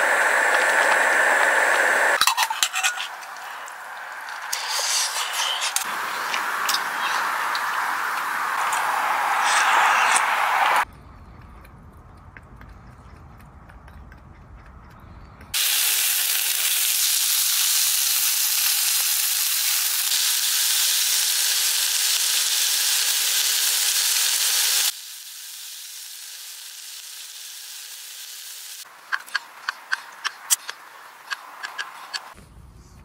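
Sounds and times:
meat sizzling in a frying pan: 0:15.6 - 0:28.9.

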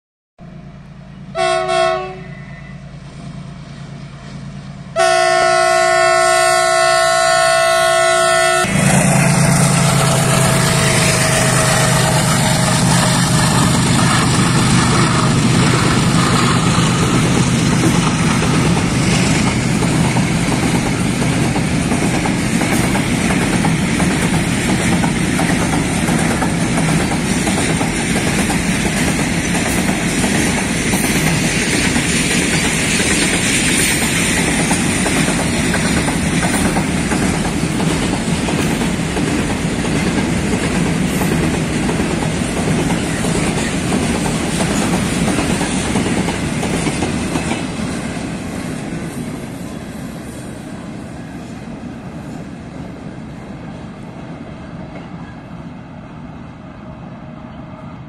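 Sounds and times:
train wheels clattering over rail joints: 0:08.8 - 0:49.2.

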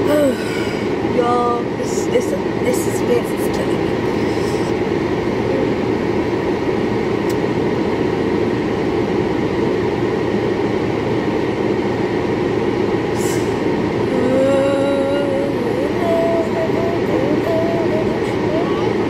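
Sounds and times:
car cabin noise: 0:13.4 - 0:19.0.

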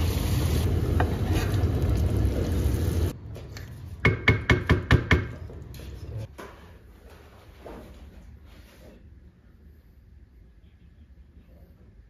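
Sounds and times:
sauce sizzling in a frying pan: 0:00.0 - 0:03.1.

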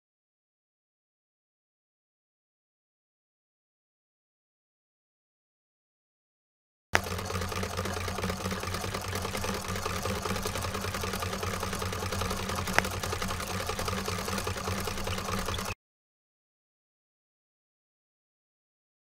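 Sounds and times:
sewing machine running: 0:07.0 - 0:15.8.

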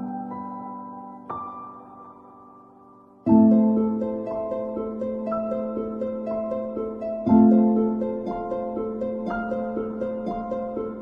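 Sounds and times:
plucked harp-like music: 0:03.3 - 0:11.0.

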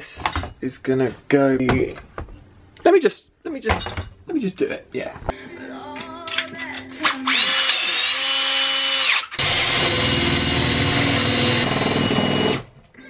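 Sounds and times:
cordless drill drilling into wood: 0:07.2 - 0:12.7.

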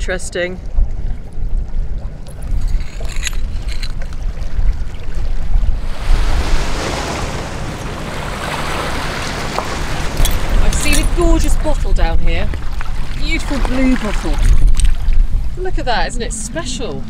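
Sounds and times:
wind rumbling on microphone: 0:00.0 - 0:17.0
small waves on stony shore: 0:02.3 - 0:15.2.

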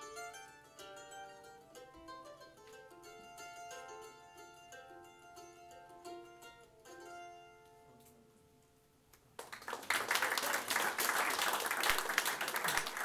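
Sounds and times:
mandolin chord ringing: 0:00.0 - 0:08.3
audience applause: 0:09.4 - 0:13.0.

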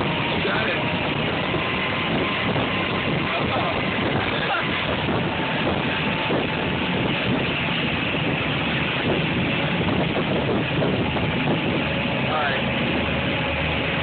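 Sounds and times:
motorboat engine and wake: 0:00.0 - 0:14.0
wind buffeting microphone: 0:00.0 - 0:14.0.

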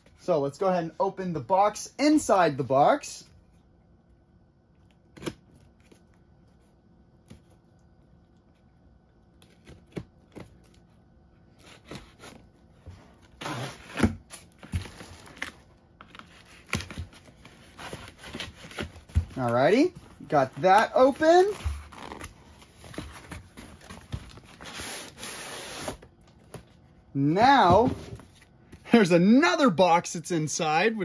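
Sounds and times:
tape and cardboard tearing: 0:13.2 - 0:19.5, 0:20.7 - 0:26.1.

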